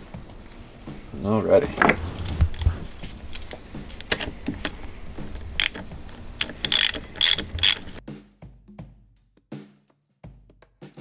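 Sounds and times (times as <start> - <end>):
hand ratchet clicking: 2.2 - 8.0.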